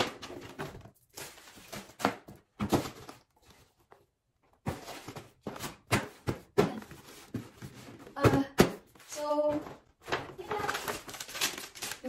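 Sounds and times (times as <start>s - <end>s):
paper rustling: 9.0s - 12.0s.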